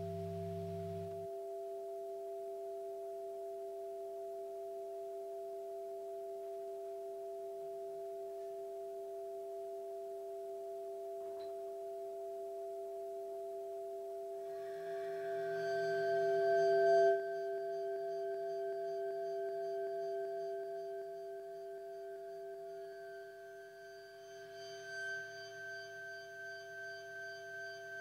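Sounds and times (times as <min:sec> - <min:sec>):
electronic drone of pure tones: 0:00.0 - 0:01.8.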